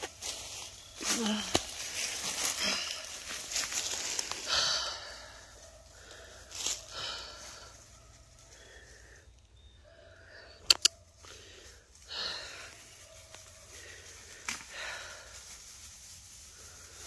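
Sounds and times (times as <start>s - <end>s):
rustling in dry leaves: 0.0s - 10.2s, 11.0s - 17.0s
sharp clicks: 10.6s - 10.9s.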